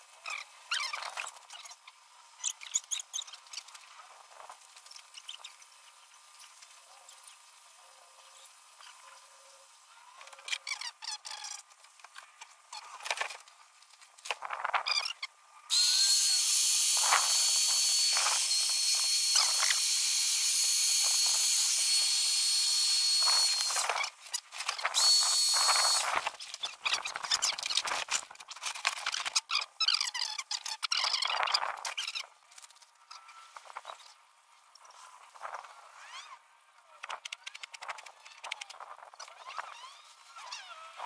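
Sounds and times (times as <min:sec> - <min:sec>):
electric air pump whining: 0:15.7 - 0:26.3.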